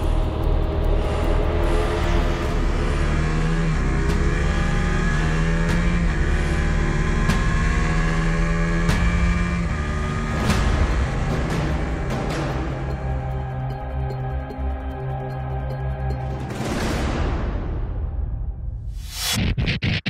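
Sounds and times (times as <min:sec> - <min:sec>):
motorcycle engine accelerating: 0:00.0 - 0:14.1.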